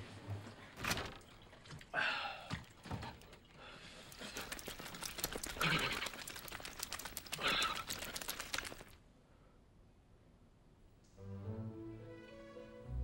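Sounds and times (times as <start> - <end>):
water flapping and spattering: 0.3 - 9.0.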